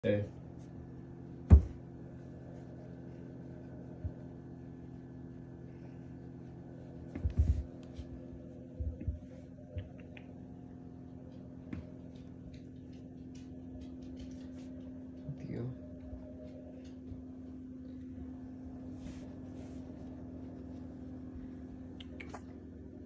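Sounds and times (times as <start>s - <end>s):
appliance electrical hum: 0.0s - 23.0s
soft low thumps: 1.4s - 2.1s, 3.8s - 4.4s, 7.0s - 10.0s.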